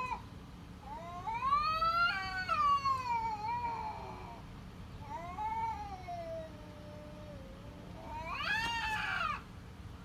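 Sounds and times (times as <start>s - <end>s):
cat meowing: 5.1s - 9.4s.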